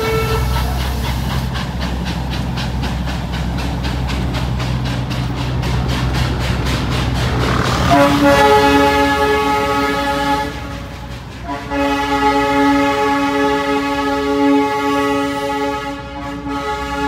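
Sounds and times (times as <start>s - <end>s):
train whistle blasts: 0.0s - 0.8s, 7.7s - 17.0s.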